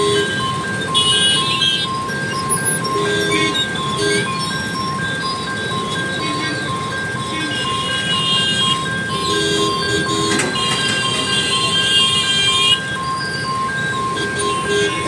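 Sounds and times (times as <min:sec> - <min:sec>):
level-crossing alarm beeping: 0:00.0 - 0:15.0
road traffic: 0:00.0 - 0:15.0
high-pitched vehicle horn blasts: 0:03.0 - 0:04.3, 0:07.5 - 0:12.8, 0:14.2 - 0:15.0.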